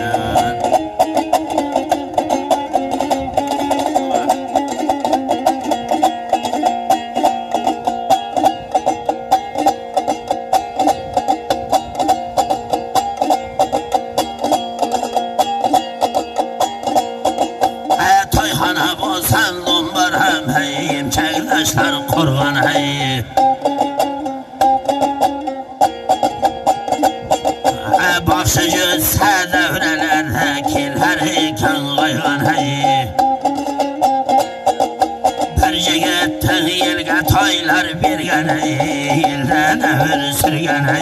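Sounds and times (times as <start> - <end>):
man singing: 0.0 - 1.1, 3.6 - 4.8, 17.9 - 23.9, 27.6 - 33.7, 35.4 - 41.0
dombra strummed: 0.0 - 41.0.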